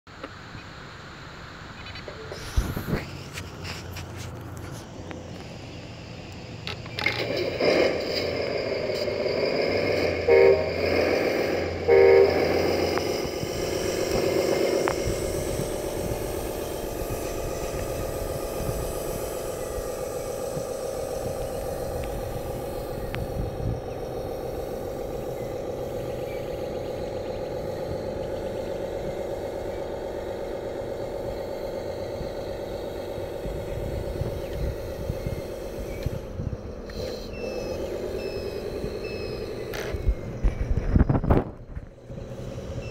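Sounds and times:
simulated diesel engine note: 0:04.9 - 0:42.9
electronic horn toots: 0:10.0 - 0:13.4.

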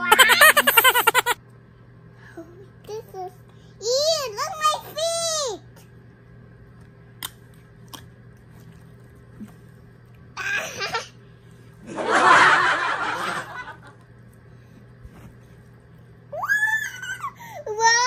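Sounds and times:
small child laughing: 0:00.0 - 0:01.4, 0:10.4 - 0:11.2, 0:16.4 - 0:18.0.

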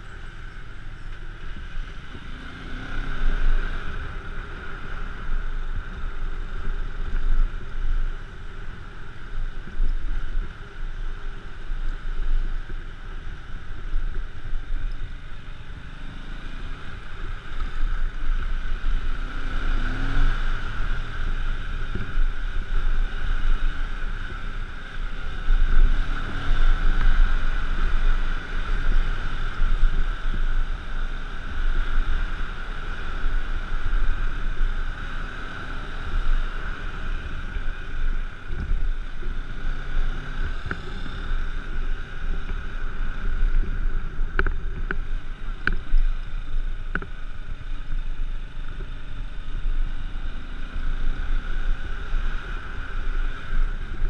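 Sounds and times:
motorcycle engine running: 0:00.0 - 0:54.0
tyres on wet road: 0:00.0 - 0:54.0
wind rushing on microphone: 0:00.0 - 0:54.0.

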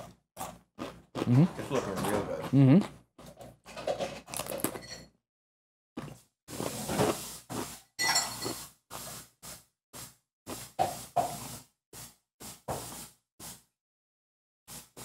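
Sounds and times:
kitchen items clinking: 0:03.7 - 0:05.1, 0:08.0 - 0:08.7.

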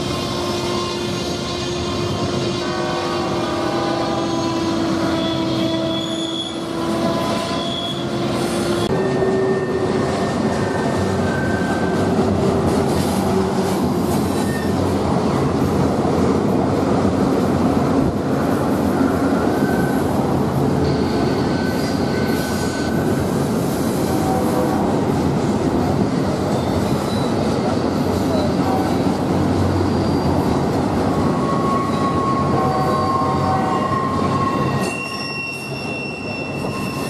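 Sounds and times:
freight train rumble: 0:00.0 - 0:37.0
train wheels squealing: 0:03.5 - 0:12.1, 0:14.3 - 0:14.8, 0:19.0 - 0:20.1, 0:20.8 - 0:23.5, 0:26.5 - 0:27.5, 0:29.7 - 0:37.0.

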